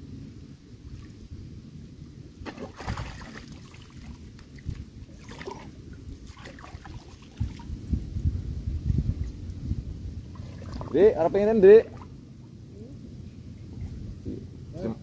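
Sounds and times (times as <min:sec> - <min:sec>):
low wind rumble: 0:00.0 - 0:15.0
boot tipped out of water: 0:02.4 - 0:04.1
water splashing and sloshing: 0:02.4 - 0:08.0, 0:10.2 - 0:12.2.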